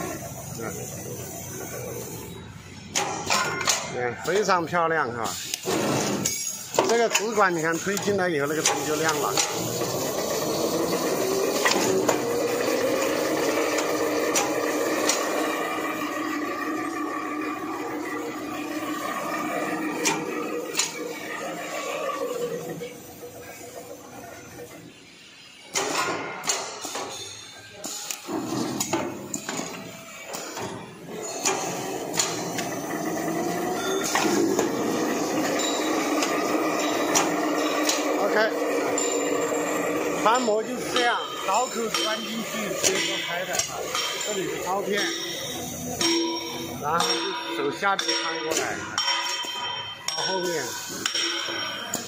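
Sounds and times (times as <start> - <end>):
winding machine hum: 8.7 - 24.2, 31.1 - 48.0.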